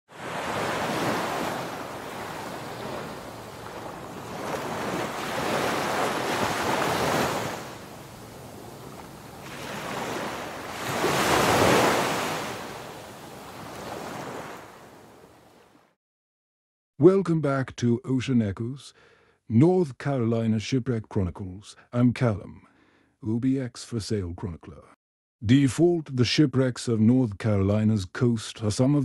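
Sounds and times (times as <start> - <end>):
ocean waves surging: 0.1 - 15.3.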